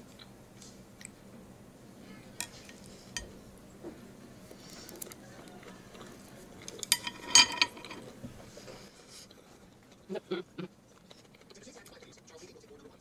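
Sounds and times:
cutlery and dishes clinking: 6.6 - 8.1.

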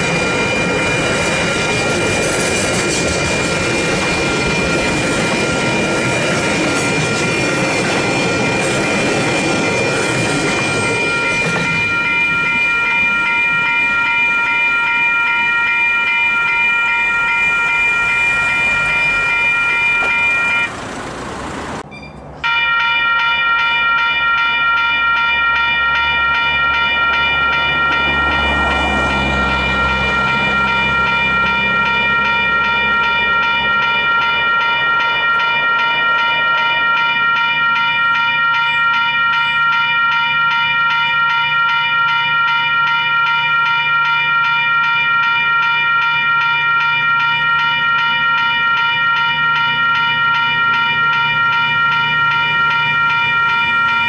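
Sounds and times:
freight train rumbling: 0.0 - 54.0
level crossing warning bells: 0.0 - 54.0
crossing barrier lowering: 15.5 - 22.8.

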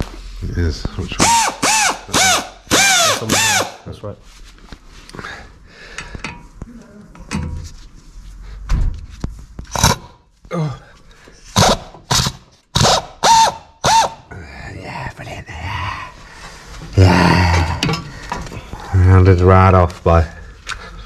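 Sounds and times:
power drill bursts: 1.2 - 3.8, 11.6 - 14.2.

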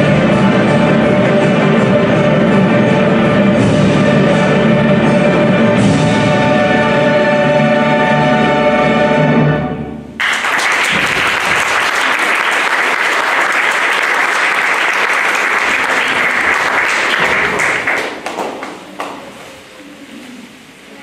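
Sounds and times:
music with held notes: 0.0 - 10.2
audience clapping: 10.2 - 19.4.

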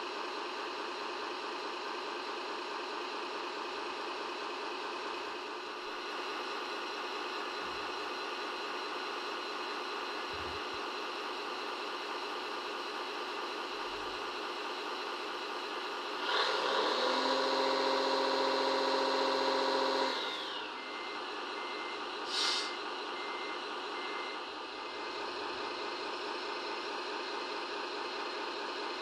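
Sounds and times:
small electric motor whining: 16.2 - 20.8
short hiss: 22.3 - 22.8.

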